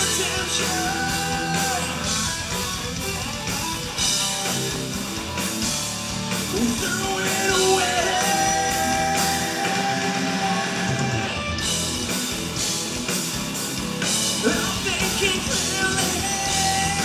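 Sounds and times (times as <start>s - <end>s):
bass guitar: 0.0s - 17.0s
drums with cymbals: 0.0s - 17.0s
electric guitars: 0.0s - 17.0s.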